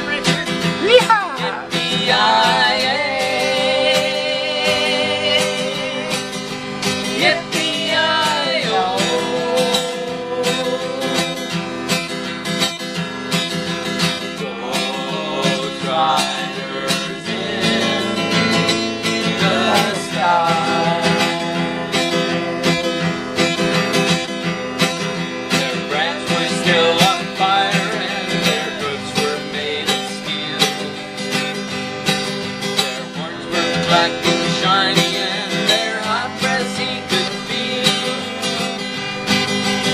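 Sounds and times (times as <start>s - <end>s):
person singing: 0.0s - 11.8s, 14.4s - 18.5s, 19.2s - 23.0s, 25.7s - 31.0s, 32.9s - 39.0s
acoustic guitar strumming: 0.0s - 39.9s.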